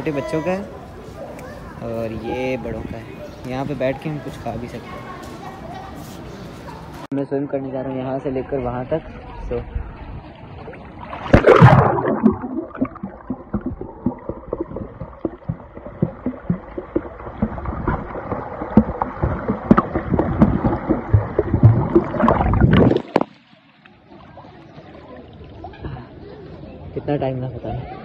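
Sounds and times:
swimming strokes splashing: 10.6 - 25.0
loud splash: 10.8 - 23.6.

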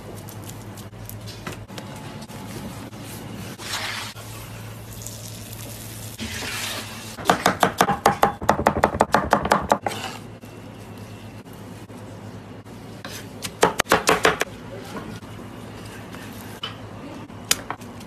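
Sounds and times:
knife chopping on cutting board: 7.2 - 10.1, 13.1 - 14.5.

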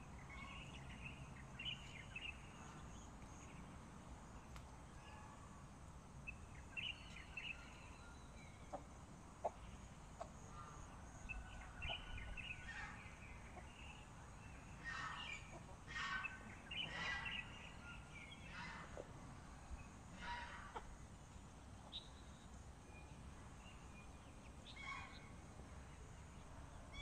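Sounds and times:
hens clucking: 8.7 - 9.6, 20.2 - 20.9.

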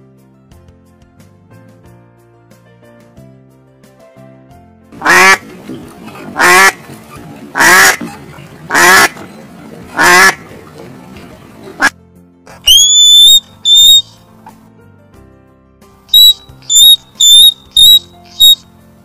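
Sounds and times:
duck quacking: 5.0 - 9.3, 9.9 - 10.5, 12.7 - 14.1, 16.2 - 18.6
high-pitched squeaky calls: 12.7 - 14.2, 16.1 - 18.6.

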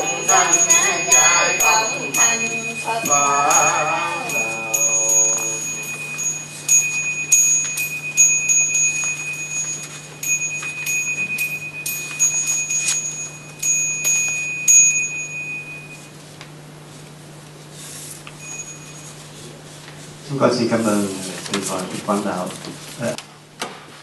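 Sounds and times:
small ritual bell ringing: 0.0 - 16.2, 18.4 - 19.6.

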